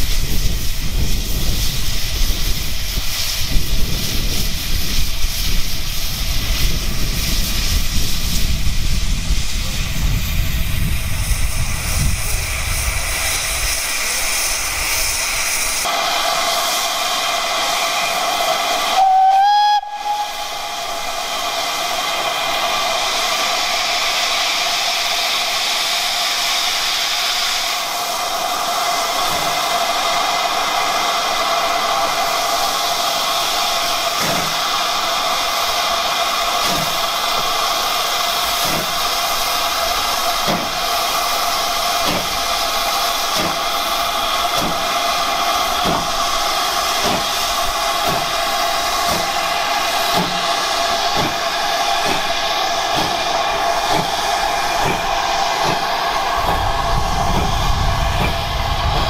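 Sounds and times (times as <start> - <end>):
steam engine exhaust beats: 0.0 - 59.0
steam hissing: 0.0 - 59.0
steam locomotive whistle: 15.9 - 23.2.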